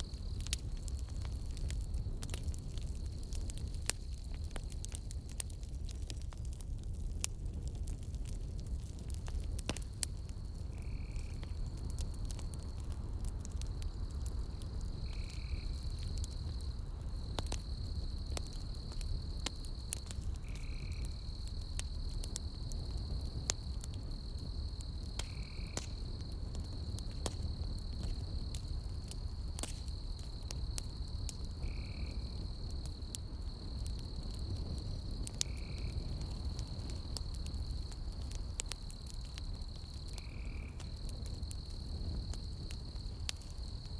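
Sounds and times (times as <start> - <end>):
campfire crackling and popping: 0.0 - 43.9
insect trill: 10.1 - 12.8, 13.8 - 43.9.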